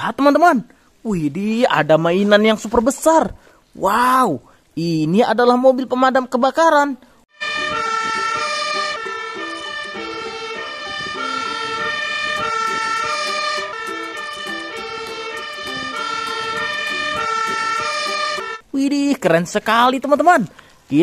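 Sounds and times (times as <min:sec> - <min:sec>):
fire engine siren: 0:07.4 - 0:18.6.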